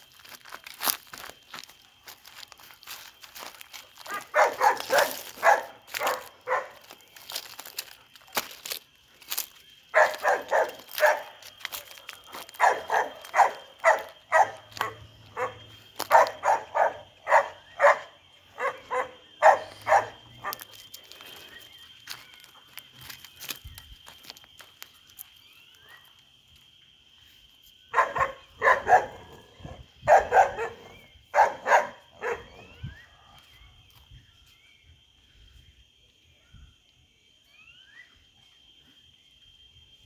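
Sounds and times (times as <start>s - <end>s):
dog barking: 4.1s - 6.8s, 9.9s - 11.4s, 12.6s - 20.7s, 27.9s - 32.8s.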